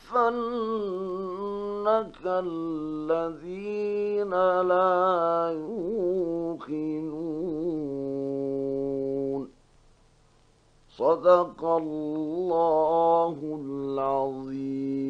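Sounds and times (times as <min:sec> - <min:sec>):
man chanting melodically: 0:00.0 - 0:09.5, 0:10.9 - 0:15.0.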